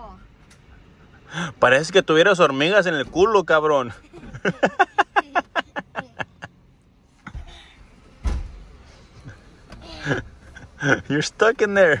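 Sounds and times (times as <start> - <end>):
person laughing: 4.0 - 6.5, 9.2 - 11.1.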